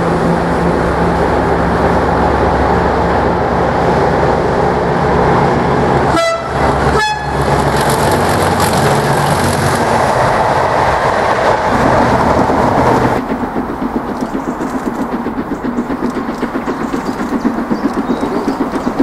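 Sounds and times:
diesel locomotive engine passing: 0:00.0 - 0:19.0
two-tone train horn: 0:06.0 - 0:07.5.

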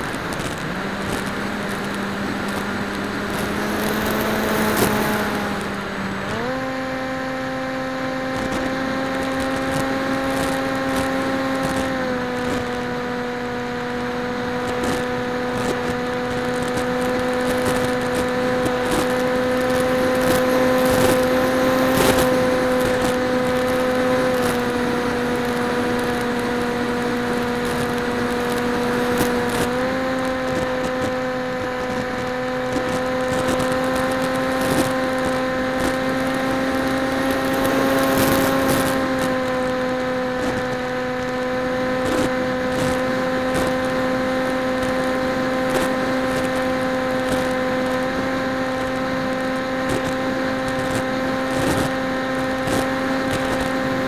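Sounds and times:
electric motor propeller whine: 0:00.0 - 0:54.0.

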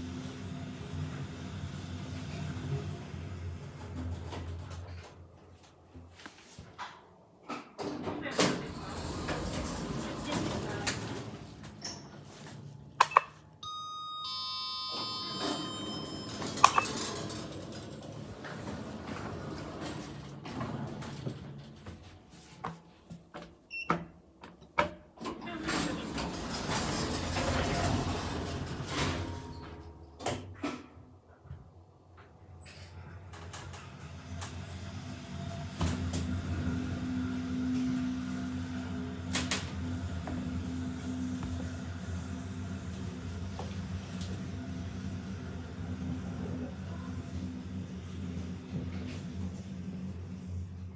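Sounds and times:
elevator low hum: 0:00.0 - 0:06.0, 0:08.6 - 0:13.0, 0:13.6 - 0:22.2, 0:25.4 - 0:50.9
two-tone elevator chime: 0:13.6 - 0:17.5.

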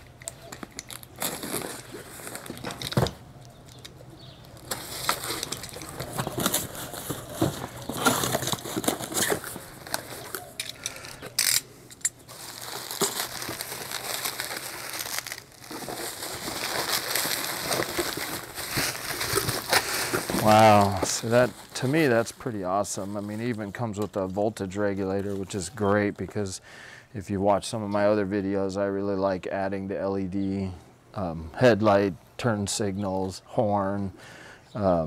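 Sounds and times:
bubble wrap crinkling: 0:00.2 - 0:11.5, 0:12.2 - 0:24.3
cardboard rustling: 0:04.5 - 0:10.6, 0:12.3 - 0:23.5.

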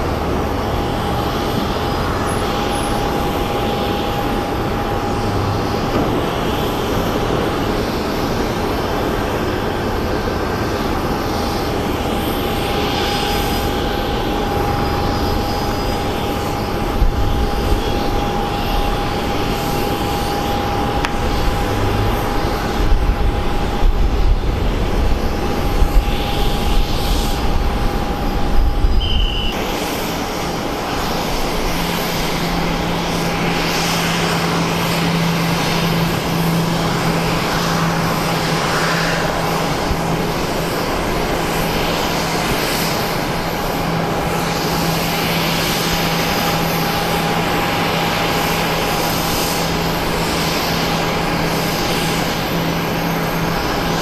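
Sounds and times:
airliner engines with high whine: 0:00.0 - 0:54.0
steady low hum: 0:00.0 - 0:54.0.

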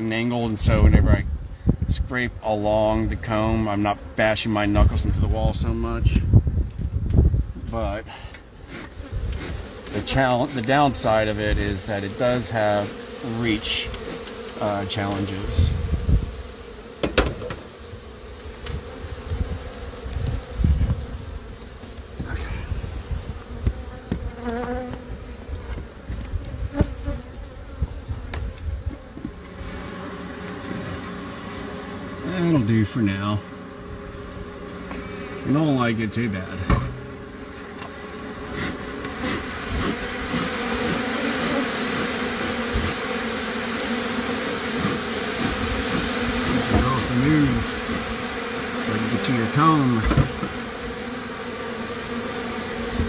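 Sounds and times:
honeybees buzzing: 0:00.0 - 0:53.0
low handling thumps: 0:36.6 - 0:37.3.

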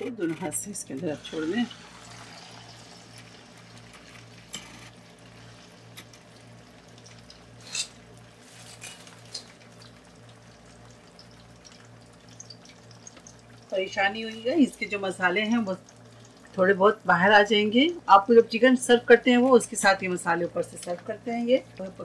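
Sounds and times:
oil crackling and popping: 0:00.1 - 0:14.6
chicken sizzling in hot oil: 0:00.8 - 0:18.0.

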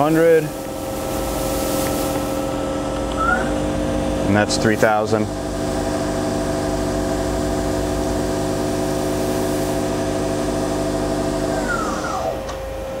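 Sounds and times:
machine spindle whining: 0:11.4 - 0:12.8.

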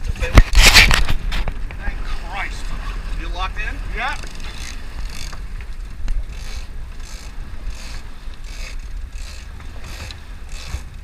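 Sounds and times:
low rumble of boat and water: 0:00.0 - 0:11.0
fishing reel cranking with rasping whir: 0:04.2 - 0:05.4, 0:06.3 - 0:11.0.

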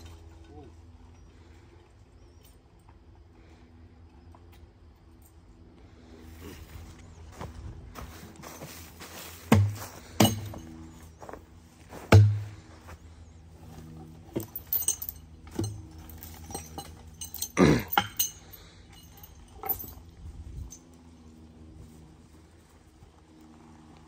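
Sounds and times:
metal tongs and chain clanking: 0:10.2 - 0:10.8, 0:14.2 - 0:20.9.

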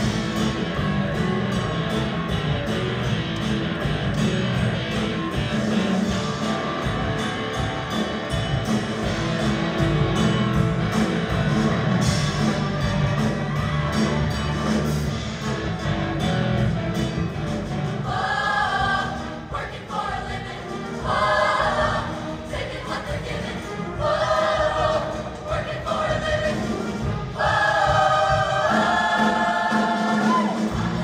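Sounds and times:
band accompaniment: 0:00.0 - 0:31.0
choir singing: 0:18.0 - 0:31.0.

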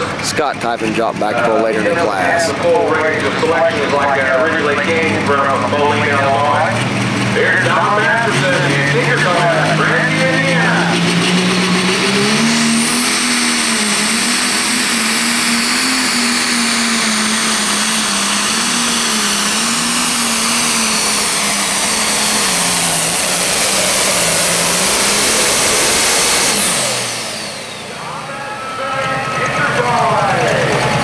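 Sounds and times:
diesel tractor engine at full load: 0:00.0 - 0:31.0
high turbo whine: 0:00.0 - 0:31.0.

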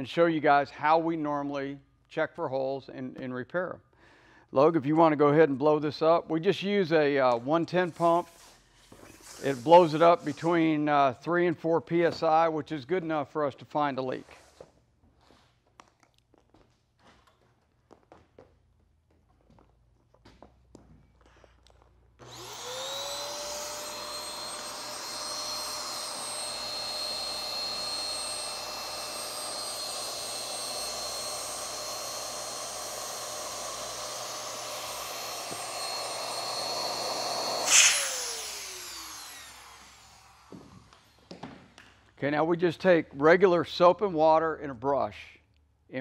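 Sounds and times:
electric inflator pump whining: 0:08.0 - 0:10.6, 0:21.7 - 0:41.9
sharp burst of air: 0:37.4 - 0:39.6.

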